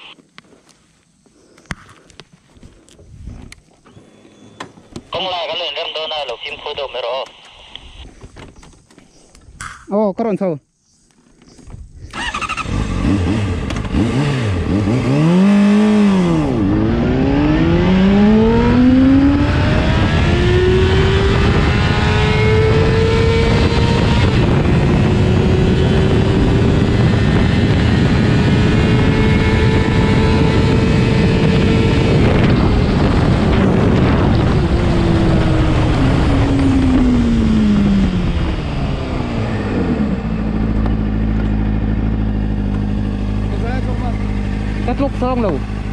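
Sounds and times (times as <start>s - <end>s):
motorcycle engine accelerating: 12.1s - 45.9s
wind rush: 17.3s - 40.7s.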